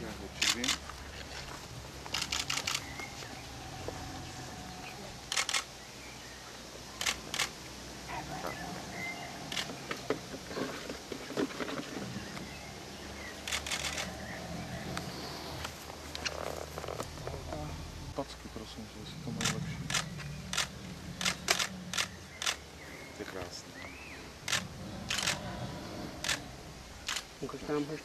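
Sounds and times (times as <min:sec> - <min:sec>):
camera shutter clicks: 0:02.1 - 0:02.9, 0:05.3 - 0:05.7, 0:07.0 - 0:07.6, 0:13.4 - 0:14.1, 0:24.5 - 0:25.4, 0:26.2 - 0:26.4, 0:27.0 - 0:27.3.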